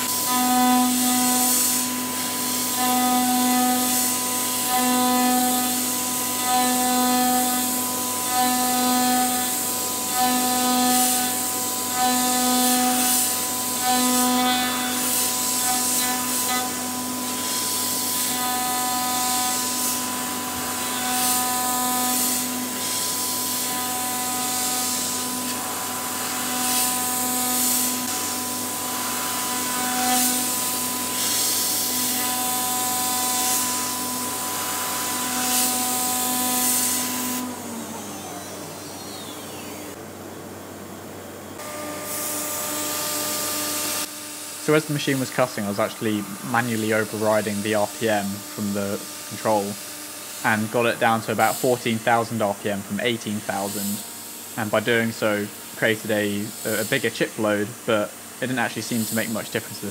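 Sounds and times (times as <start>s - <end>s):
router cutting metal: 0.0s - 40.1s, 41.6s - 59.9s.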